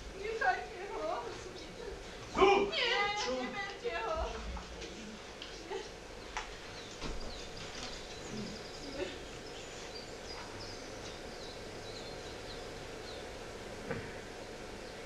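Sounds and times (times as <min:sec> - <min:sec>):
steady outdoor hiss: 0:00.0 - 0:15.0
birds chirping: 0:05.3 - 0:15.0.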